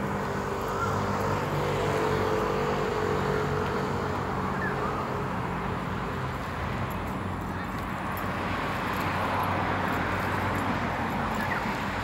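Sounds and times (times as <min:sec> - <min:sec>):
traffic noise: 0:00.0 - 0:12.0.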